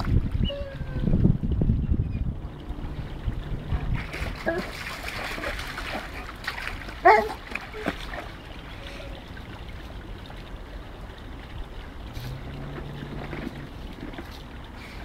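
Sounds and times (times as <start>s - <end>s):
water trickling: 0.0s - 15.0s
dog splashing in stream: 2.9s - 8.8s.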